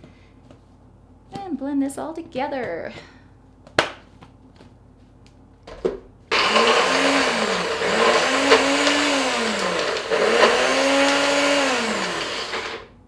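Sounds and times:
blender motor running: 0:06.3 - 0:13.0.

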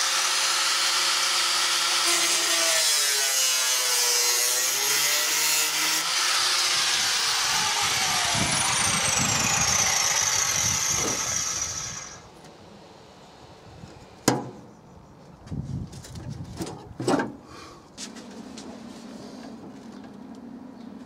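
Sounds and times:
power tool cutting sheet steel: 0:00.0 - 0:12.3.

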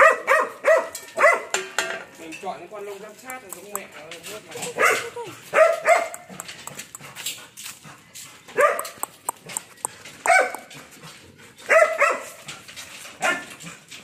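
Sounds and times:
puppies barking: 0:00.0 - 0:01.6, 0:04.5 - 0:07.4, 0:08.5 - 0:11.0, 0:11.6 - 0:12.5.

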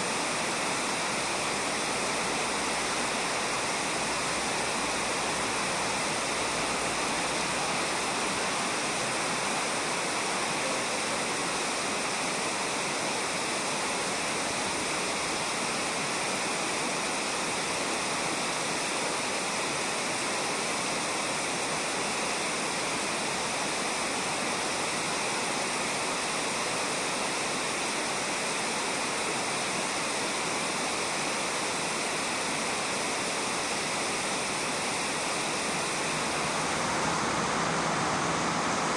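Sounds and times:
river rushing over gravel: 0:00.1 - 0:38.9.

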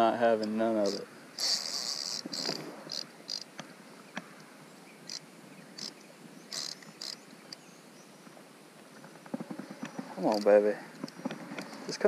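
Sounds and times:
rod and reel clicks: 0:00.4 - 0:04.3, 0:05.1 - 0:07.7, 0:09.0 - 0:12.0
fishing reel drag buzzing: 0:00.8 - 0:03.5, 0:05.8 - 0:07.6.

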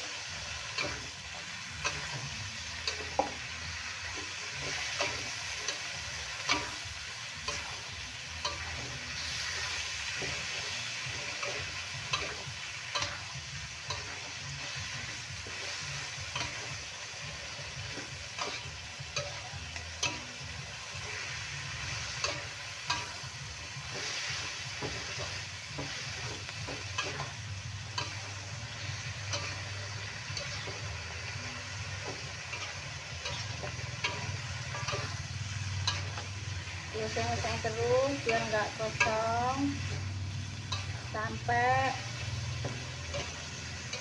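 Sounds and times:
food sizzling in a wok: 0:00.0 - 0:44.0
metal spatula scraping pan: 0:20.9 - 0:44.0.

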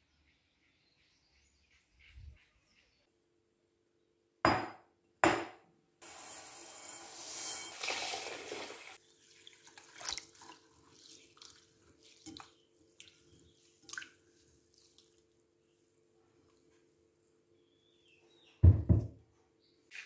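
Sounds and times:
rice poured into a glass bowl: 0:06.0 - 0:09.0
hand swishing rice in water: 0:07.8 - 0:15.4.

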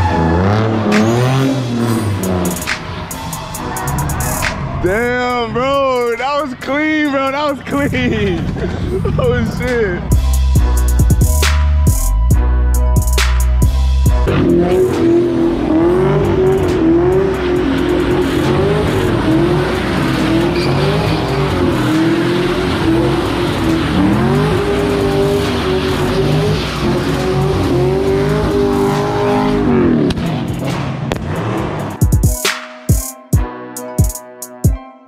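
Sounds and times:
car engine at high revs: 0:00.0 - 0:04.7, 0:14.2 - 0:32.1
tyres squealing: 0:14.3 - 0:29.6.

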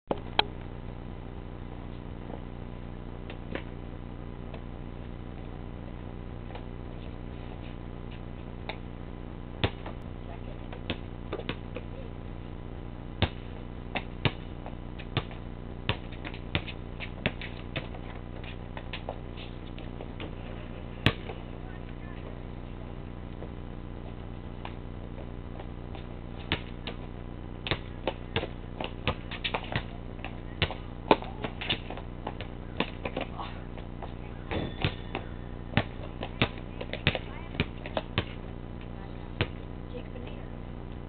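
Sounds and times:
steady low hum: 0:00.1 - 0:41.0
basketball bouncing on concrete: 0:09.6 - 0:10.0, 0:10.6 - 0:11.9, 0:13.2 - 0:20.4, 0:21.0 - 0:22.4, 0:24.6 - 0:40.3.

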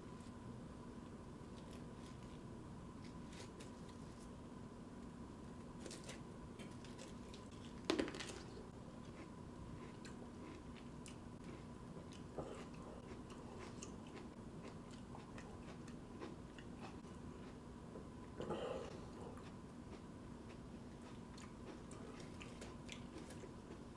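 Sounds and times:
chewing with small crunches: 0:05.7 - 0:23.9.

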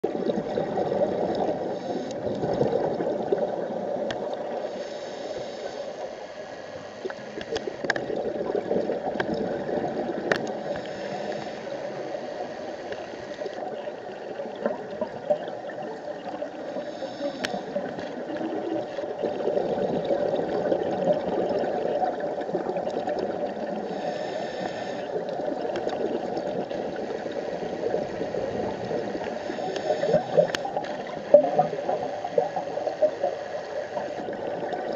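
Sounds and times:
muffled underwater rush: 0:00.0 - 0:34.9
scuba regulator breathing hiss: 0:01.6 - 0:02.3, 0:04.6 - 0:07.8, 0:10.5 - 0:13.6, 0:16.7 - 0:18.0, 0:23.8 - 0:25.3, 0:27.1 - 0:30.9, 0:31.8 - 0:34.3.

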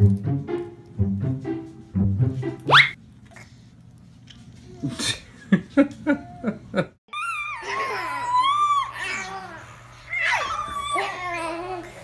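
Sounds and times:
babies laughing: 0:06.1 - 0:09.6
babies squealing: 0:07.1 - 0:12.0.

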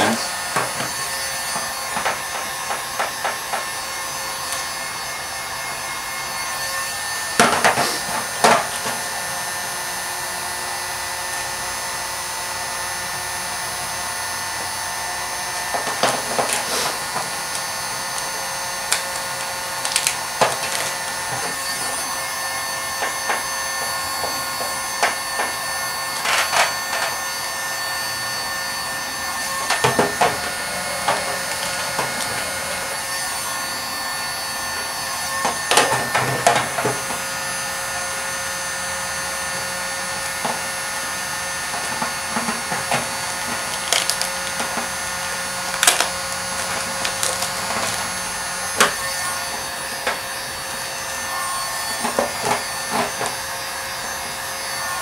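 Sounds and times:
heat gun fan whirring: 0:00.0 - 0:55.0
vinyl film crinkling: 0:19.8 - 0:21.0, 0:43.7 - 0:44.6, 0:45.7 - 0:48.1.

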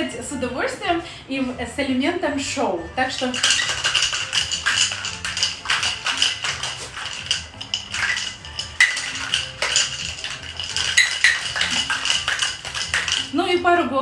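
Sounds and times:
background music: 0:00.0 - 0:14.0
ice rattling in cocktail shaker: 0:03.1 - 0:13.8.

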